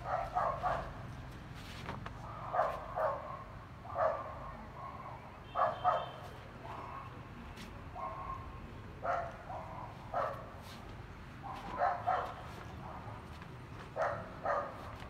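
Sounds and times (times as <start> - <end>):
dog barking: 0.0 - 1.0, 2.2 - 7.2, 7.9 - 10.6, 11.4 - 13.3, 14.0 - 15.0.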